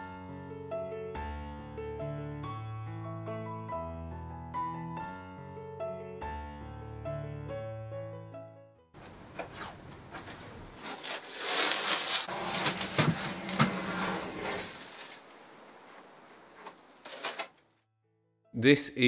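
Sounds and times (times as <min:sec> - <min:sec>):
handling sounds: 0:09.0 - 0:17.8
masking tape peeling: 0:09.4 - 0:15.6, 0:16.6 - 0:17.7.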